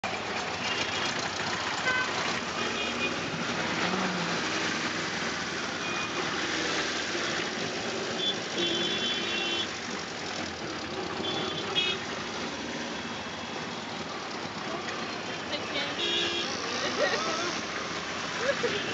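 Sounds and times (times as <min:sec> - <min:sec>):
vehicle horns honking: 0:01.8 - 0:03.2, 0:08.1 - 0:09.8, 0:11.1 - 0:12.0, 0:15.5 - 0:17.1
small engine running: 0:16.0 - 0:18.9.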